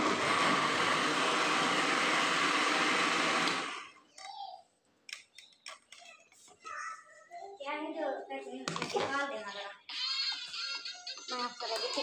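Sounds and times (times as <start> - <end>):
electric blender running: 0.0 - 4.0.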